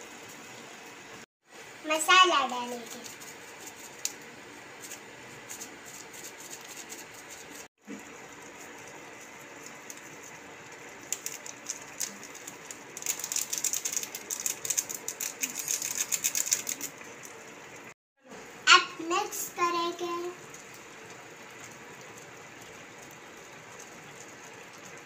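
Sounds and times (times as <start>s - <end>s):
foil sachet crinkling and tearing: 11.0s - 16.9s.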